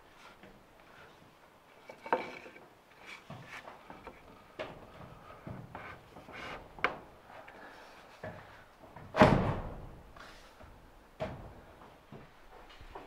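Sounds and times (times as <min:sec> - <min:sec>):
wood scraping on wood: 0:00.0 - 0:08.5.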